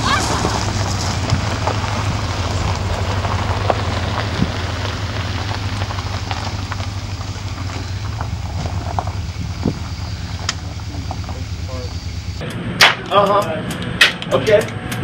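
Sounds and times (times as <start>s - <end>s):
tyres crackling on gravel: 0.0s - 14.6s
engine hum: 0.0s - 15.0s.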